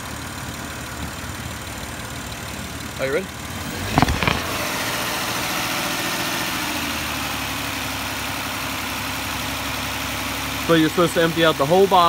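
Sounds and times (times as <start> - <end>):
car engine running: 0.0 - 5.9.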